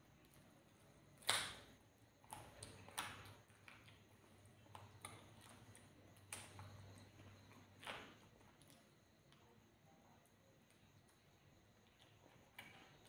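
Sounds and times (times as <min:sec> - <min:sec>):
wet chewing clicks: 0:00.2 - 0:09.5.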